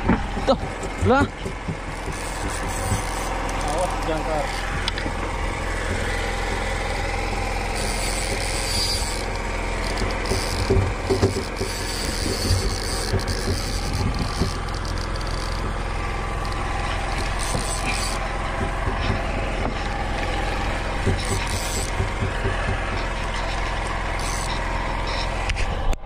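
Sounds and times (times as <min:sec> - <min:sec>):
boat engine humming: 0:00.0 - 0:26.0
fishing reel clicking: 0:02.0 - 0:05.0, 0:07.7 - 0:15.7, 0:16.4 - 0:18.2, 0:21.2 - 0:21.9, 0:24.2 - 0:25.3.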